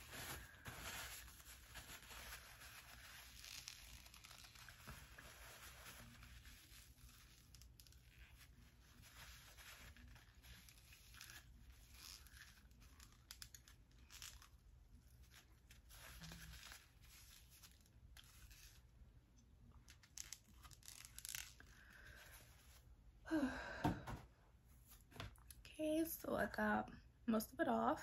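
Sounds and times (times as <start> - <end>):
paper rustling and crinkling: 0.0 - 18.9.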